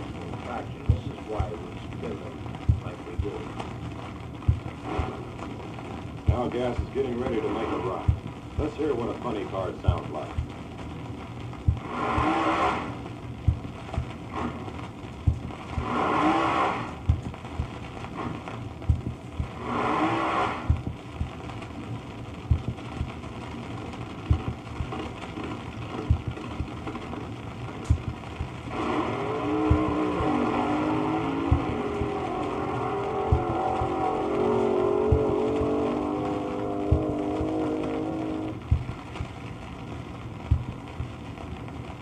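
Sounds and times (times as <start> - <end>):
vinyl record surface noise: 0.0 - 42.0
car engine revving: 4.4 - 5.5, 11.6 - 21.4, 27.8 - 39.0.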